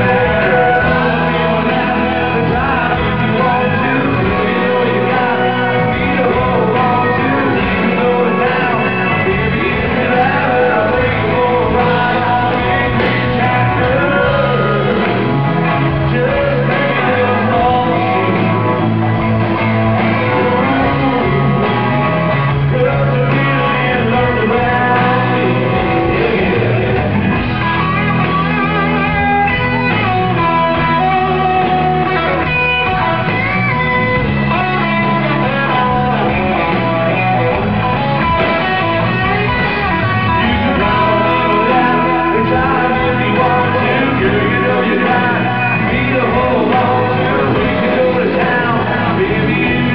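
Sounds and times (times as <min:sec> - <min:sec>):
live country rock band: 0:00.0 - 0:49.9
man singing lead vocal: 0:00.0 - 0:49.9.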